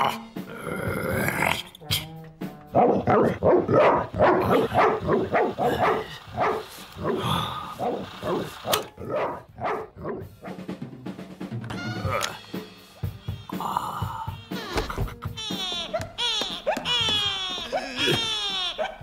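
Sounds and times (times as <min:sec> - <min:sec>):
dog barking in loud yaps: 0:02.8 - 0:07.2, 0:07.8 - 0:10.6, 0:18.7 - 0:19.0.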